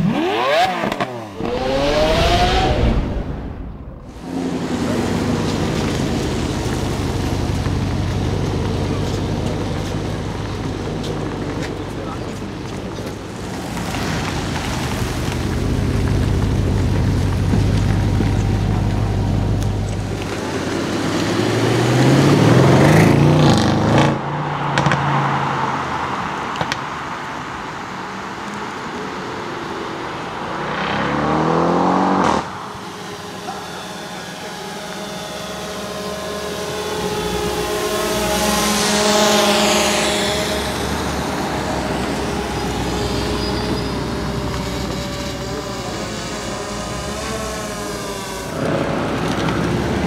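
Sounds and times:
car engine revving: 0.0 - 27.0, 28.6 - 50.0
car driving past: 0.0 - 27.1, 30.0 - 50.0
exhaust pops: 0.8 - 20.5.

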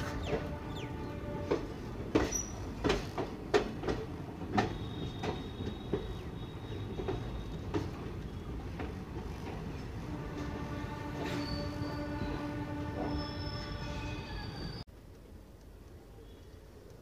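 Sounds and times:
train wheels clanking over rail joints: 0.0 - 13.6
low train rumble: 0.0 - 15.6
faint high squeal: 11.2 - 12.4, 13.0 - 14.9.

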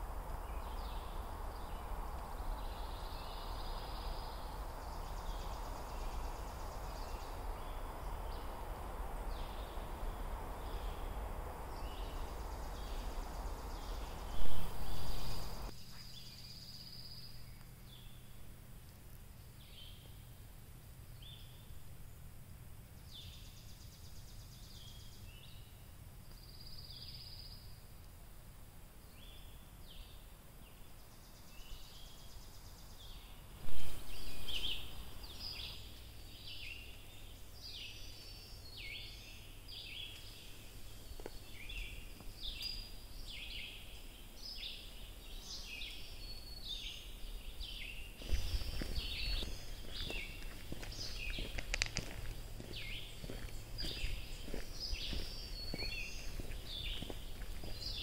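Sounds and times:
noise bursts: 0.0 - 15.8, 33.4 - 37.0, 48.1 - 57.8
forest birds calling: 0.0 - 18.5, 22.9 - 27.9, 29.0 - 58.0.

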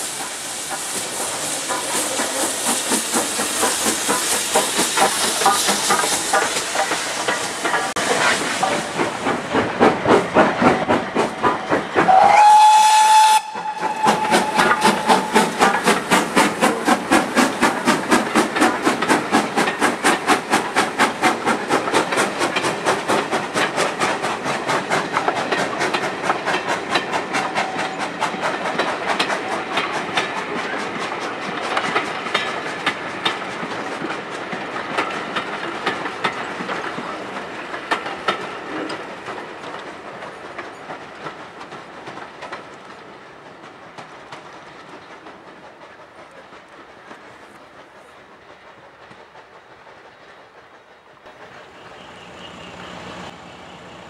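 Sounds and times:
steam hissing: 0.0 - 54.0
steam locomotive chuffing: 0.0 - 54.0
steam whistle blast: 12.1 - 15.6.

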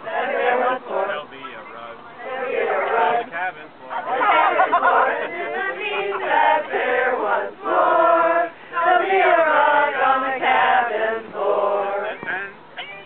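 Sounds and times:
group of people singing: 0.0 - 12.6.

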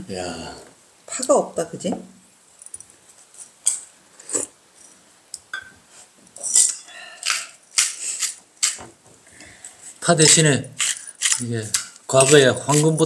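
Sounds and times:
pepper grinder crunching: 7.2 - 8.8, 10.2 - 13.0.

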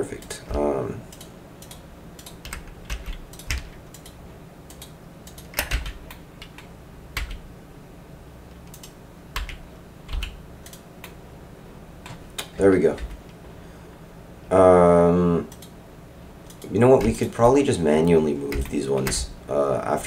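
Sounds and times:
keyboard key presses: 0.5 - 7.4, 16.5 - 17.3, 18.5 - 19.3.

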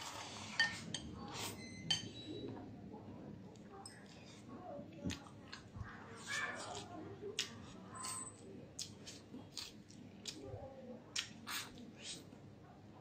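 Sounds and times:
person chewing: 6.2 - 7.8, 8.8 - 10.4, 11.1 - 12.3.

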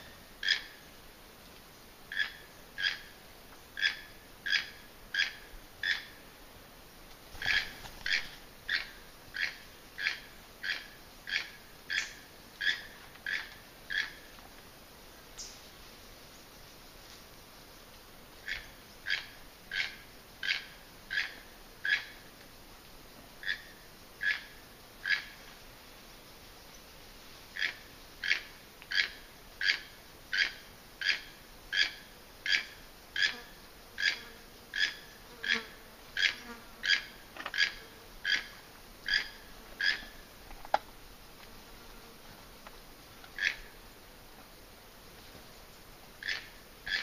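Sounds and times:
repeated short animal calls: 0.0 - 0.8, 2.1 - 3.2, 3.8 - 6.2, 7.3 - 14.3, 18.4 - 22.2, 23.4 - 25.4, 27.5 - 40.2, 43.2 - 43.8, 46.2 - 47.0.

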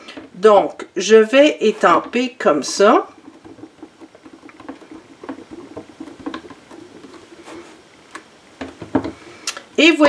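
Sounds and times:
hands tapping and rubbing plastic: 2.0 - 9.2.

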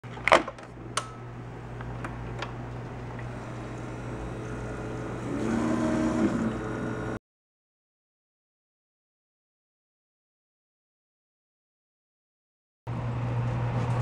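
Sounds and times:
coffee maker humming: 0.8 - 7.2.

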